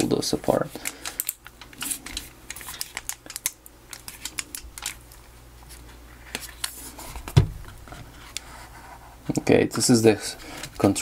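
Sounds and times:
plastic casing clicking and crackling: 0.8 - 5.1
dull thump: 7.3 - 7.6.

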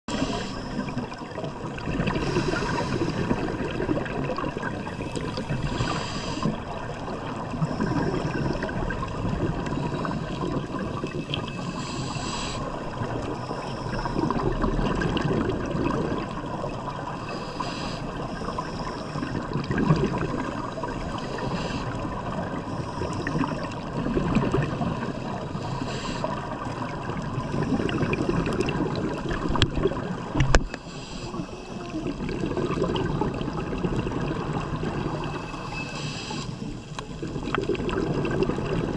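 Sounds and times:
regulator inhalation hiss: 0.1 - 1.0, 2.2 - 3.4, 5.0 - 6.6, 11.5 - 14.3, 17.2 - 19.1, 21.0 - 22.0, 24.9 - 26.4, 30.7 - 31.8, 35.4 - 36.7
exhaled air bubbling: 0.1 - 38.9.

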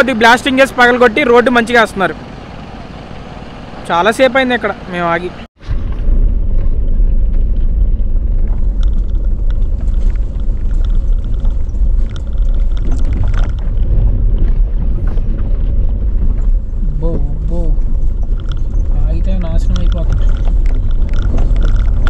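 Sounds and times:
car rumbling over rough road: 0.0 - 22.0
gravel crunching under tyres: 5.6 - 22.0.

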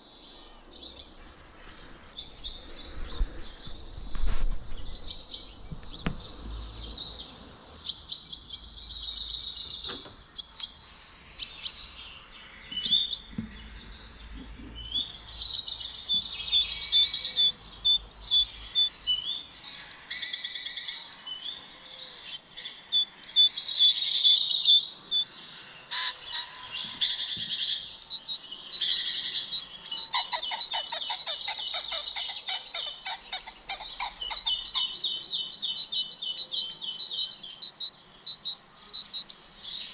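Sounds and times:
songbirds singing and chirping: 0.0 - 39.9
fast bird trill: 25.9 - 39.9.

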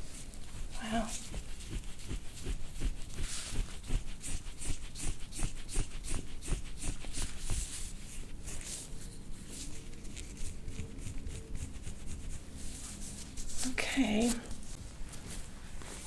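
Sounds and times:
hands tapping and rustling: 0.2 - 8.8.

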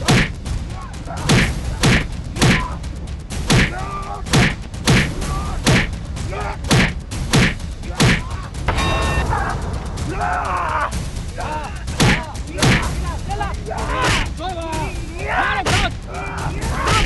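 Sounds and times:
punch hits with whoosh: 0.0 - 0.4, 1.3 - 2.7, 3.4 - 3.7, 4.3 - 6.0, 6.7 - 8.8
grunts and groans: 0.0 - 2.9, 9.2 - 17.0.

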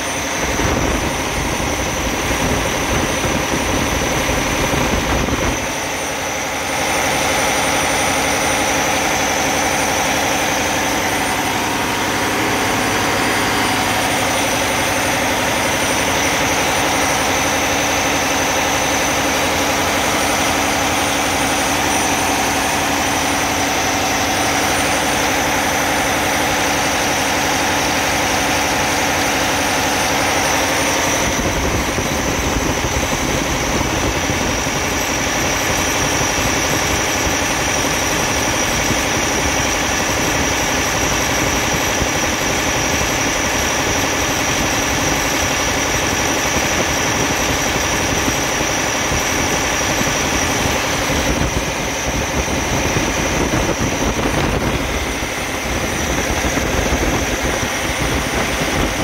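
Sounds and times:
diesel engine idling: 0.0 - 41.8.

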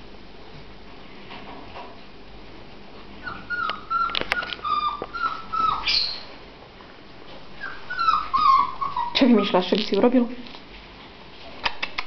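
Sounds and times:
puppy whimpering: 3.2 - 6.3, 7.6 - 10.0.

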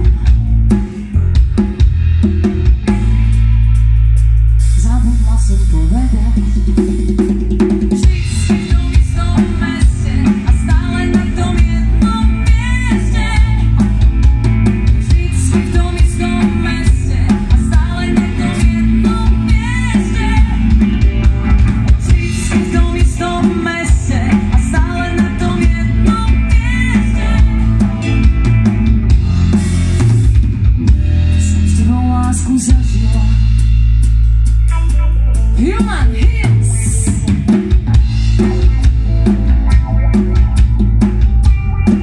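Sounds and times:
electric guitars: 0.0 - 42.0
female lead vocal: 8.0 - 14.1, 14.8 - 21.0, 21.9 - 28.1, 31.4 - 33.5, 35.4 - 37.5
drum kit kick and snare: 35.7 - 42.0.

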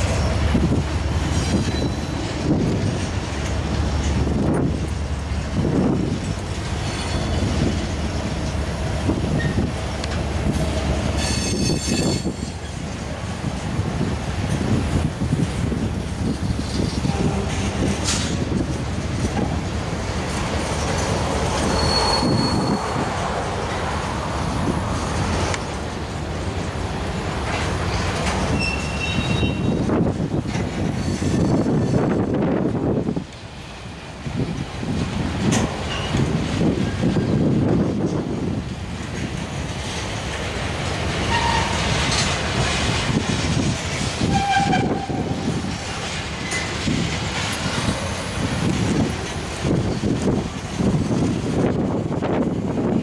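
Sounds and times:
train wheels rumbling on rails: 0.0 - 53.0
high wheel squeal: 1.3 - 2.3, 6.8 - 7.6, 11.1 - 12.8, 21.6 - 23.2, 28.5 - 29.8, 31.0 - 32.0, 41.3 - 41.9.

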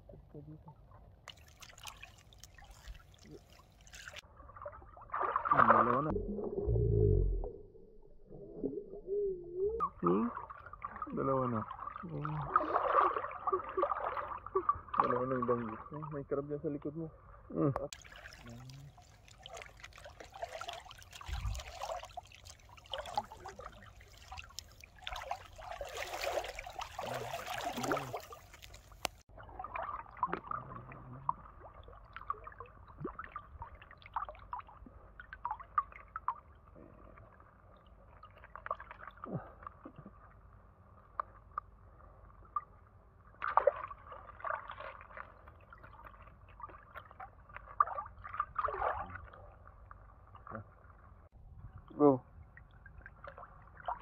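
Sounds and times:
seawater sloshing and splashing: 1.2 - 6.1, 10.2 - 16.1, 17.9 - 36.6, 43.4 - 49.5.

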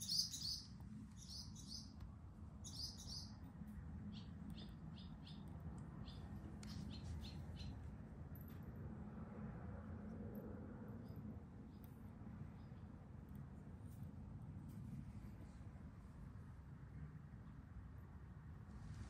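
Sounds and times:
small birds chirping: 0.0 - 7.9.

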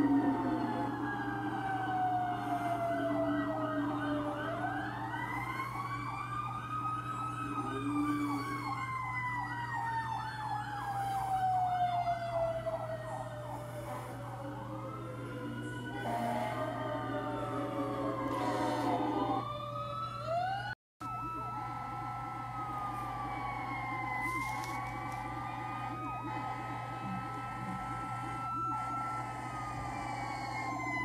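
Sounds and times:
siren yelping rapidly: 0.0 - 31.0
mechanical siren winding: 18.2 - 19.4, 24.0 - 25.4.

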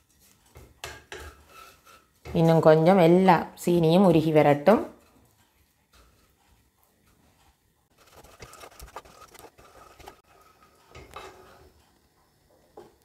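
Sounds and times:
spatula scraping a pot: 0.0 - 2.8, 4.9 - 12.0.

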